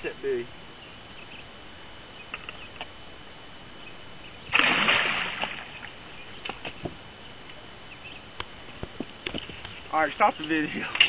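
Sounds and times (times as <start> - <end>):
fish splashing at the surface: 4.5 - 5.9.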